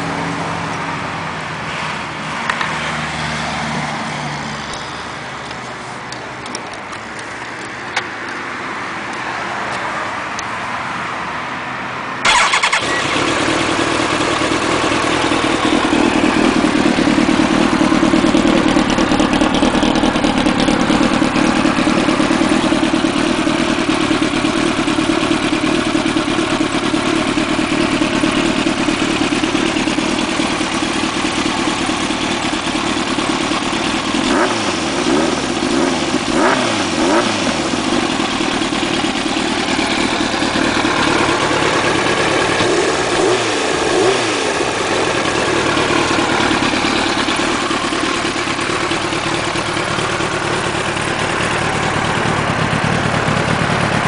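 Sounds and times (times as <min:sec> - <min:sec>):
motorcycle engine idling: 0:12.2 - 0:54.0
motorcycle engine revving: 0:12.2 - 0:54.0.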